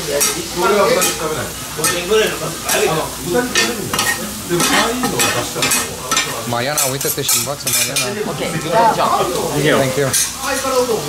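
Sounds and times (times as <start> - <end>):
food sizzling: 0.0 - 11.0
metal spatulas scraping griddle: 3.5 - 8.1.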